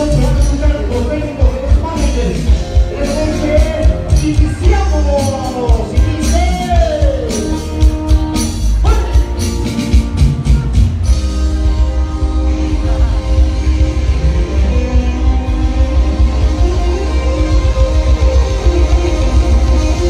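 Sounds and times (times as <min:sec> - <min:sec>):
live band music: 0:00.0 - 0:20.0.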